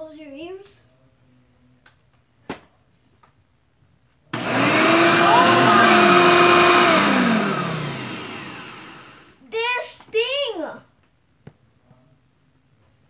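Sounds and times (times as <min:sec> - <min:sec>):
vacuum cleaner motor whine: 0:04.4 - 0:09.4.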